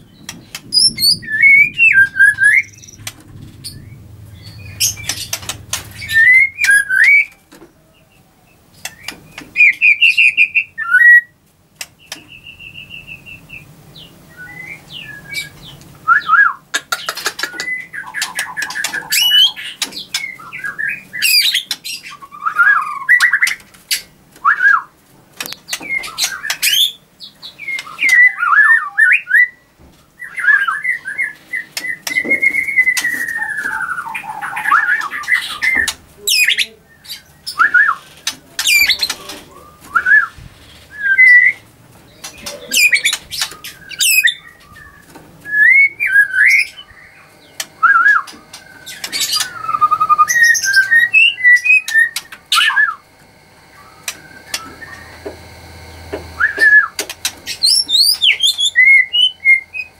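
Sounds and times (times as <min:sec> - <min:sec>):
bird singing whistled phrases: 0:00.7 - 0:03.1, 0:03.7 - 0:07.4, 0:14.3 - 0:16.6, 0:17.6 - 0:23.5, 0:30.2 - 0:39.0, 0:39.6 - 0:41.6, 0:42.7 - 0:53.0, 0:56.4 - 0:59.9.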